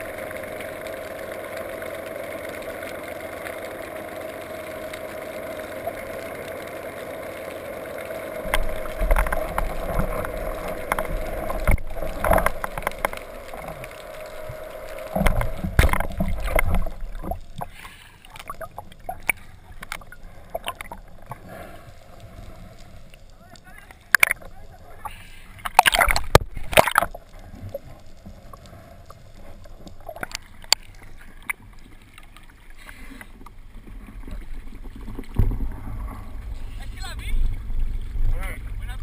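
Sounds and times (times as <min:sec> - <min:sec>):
steady drone: 0:00.0 - 0:23.5
scattered clicks: 0:00.0 - 0:32.5
underwater rushing water: 0:00.0 - 0:39.0.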